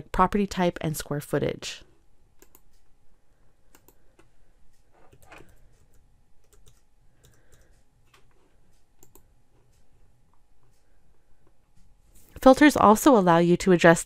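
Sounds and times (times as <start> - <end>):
faint keyboard typing: 2.4 - 3.0, 3.6 - 12.8.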